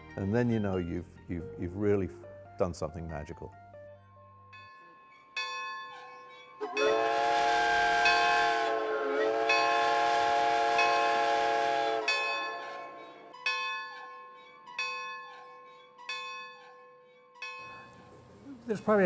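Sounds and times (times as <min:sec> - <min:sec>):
locomotive bell ringing: 0:04.4 - 0:07.4, 0:08.0 - 0:08.6, 0:09.5 - 0:10.0, 0:10.8 - 0:11.2, 0:12.0 - 0:19.0
steam locomotive whistle blasts: 0:06.6 - 0:13.4.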